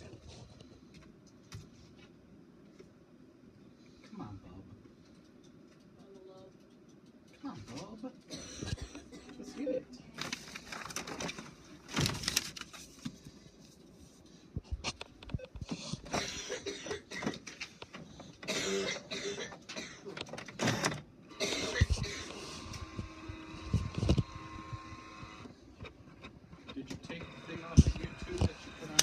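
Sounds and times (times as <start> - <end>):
faint steady hum: 0.0 - 29.0
paper rustling: 10.2 - 14.1.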